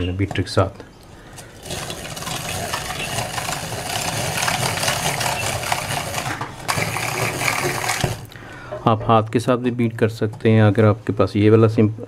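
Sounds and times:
rotary egg beater whirring: 1.3s - 8.4s.

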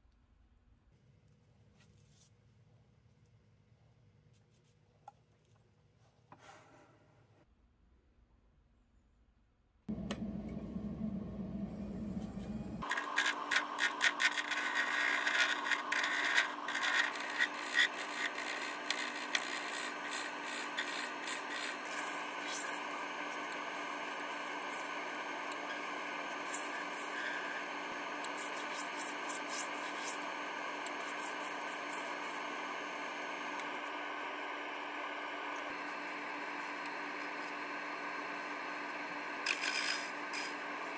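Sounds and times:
wood lathe motor whine: 9.9s - 40.9s
tool scraping spinning wood: 12.4s - 32.6s.

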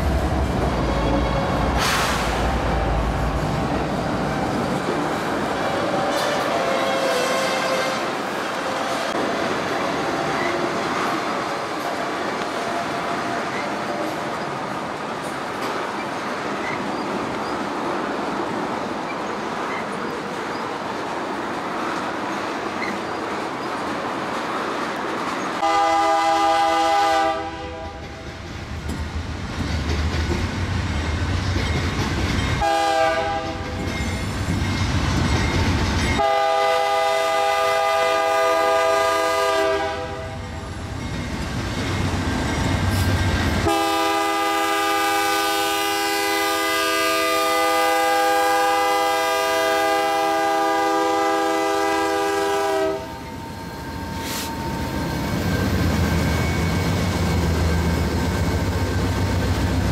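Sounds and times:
diesel locomotive rumble: 0.0s - 17.5s, 21.8s - 59.9s
locomotive air horn blasts: 6.1s - 8.2s, 25.6s - 28.0s, 32.6s - 33.6s, 36.2s - 40.4s, 43.6s - 53.2s.

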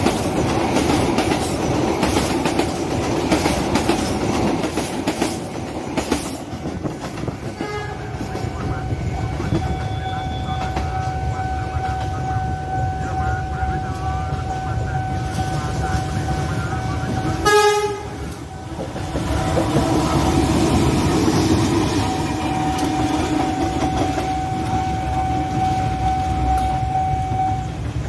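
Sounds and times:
train wheels on rails: 0.0s - 28.0s
train horn blast: 7.6s - 8.2s, 17.4s - 18.4s, 22.1s - 27.8s
level crossing alarm tone: 22.3s - 27.9s.

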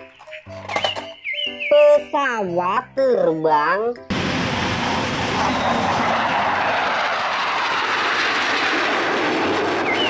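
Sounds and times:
fighter jets roaring overhead: 4.1s - 10.0s.

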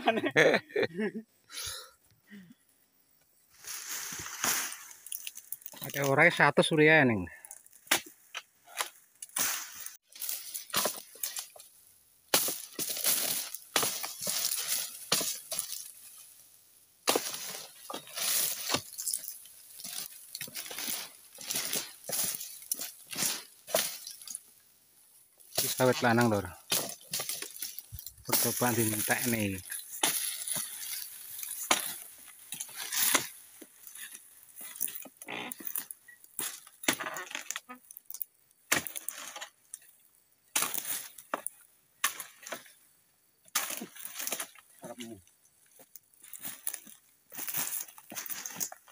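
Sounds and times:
chisel chopping palm fronds: 7.8s - 11.6s, 12.3s - 15.9s, 17.0s - 24.1s, 25.5s - 33.4s, 35.7s - 37.5s, 38.7s - 39.4s, 40.6s - 42.7s
blade hacking fibrous stalks: 7.8s - 11.7s, 12.3s - 16.3s, 17.0s - 24.4s, 25.4s - 37.4s.

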